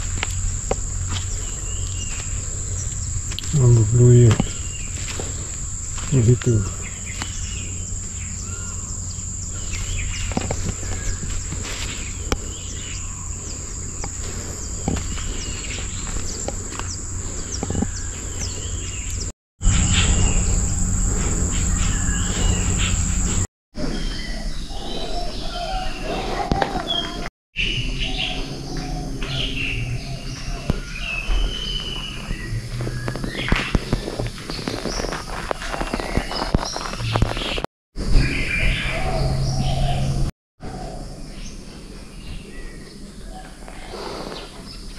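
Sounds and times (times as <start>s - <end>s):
low rumble: 0.0s - 23.5s
birds chirping: 0.0s - 44.9s
high-pitched insect drone: 19.6s - 23.5s.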